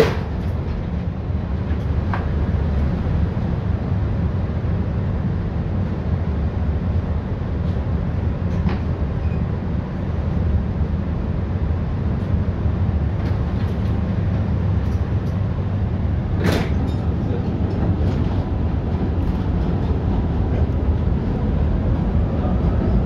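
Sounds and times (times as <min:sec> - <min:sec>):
tram motors and wheels rumbling: 0:00.0 - 0:23.0.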